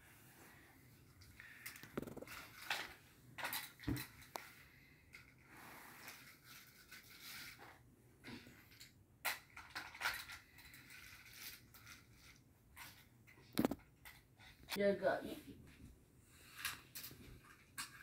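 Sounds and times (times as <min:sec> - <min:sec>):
plastic toy pieces clicking: 0:08.7 - 0:14.2.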